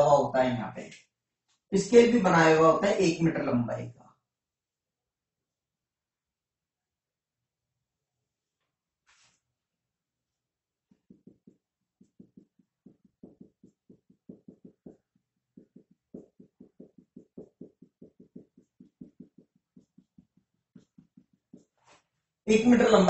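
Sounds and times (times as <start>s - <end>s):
marker pen tapping on whiteboard: 10.8s - 22.1s.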